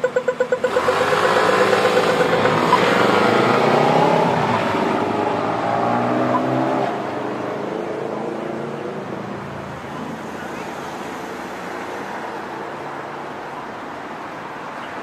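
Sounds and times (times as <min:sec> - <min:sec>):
vehicle engine passing by: 0:00.6 - 0:08.9.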